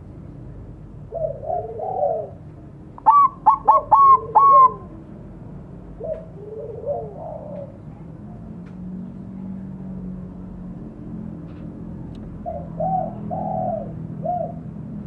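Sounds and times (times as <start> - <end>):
dove trilled coos: 1.0 - 5.0, 6.0 - 7.9, 12.4 - 15.0
loud ringing bird notes: 3.0 - 4.9.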